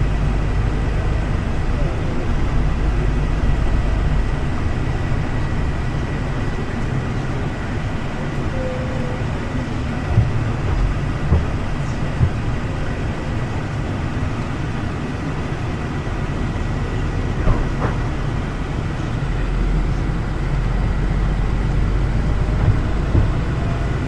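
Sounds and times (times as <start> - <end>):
faint whine: 0.0 - 13.2
train rumbling: 0.0 - 24.0
short knocks: 22.5 - 23.8.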